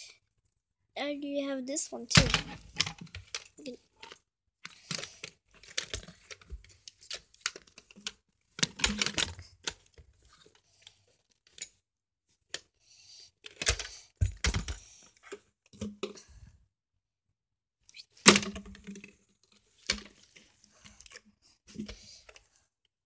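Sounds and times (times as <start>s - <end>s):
plastic toys clicking and knocking: 2.1s - 10.3s, 13.4s - 16.3s, 18.1s - 22.4s.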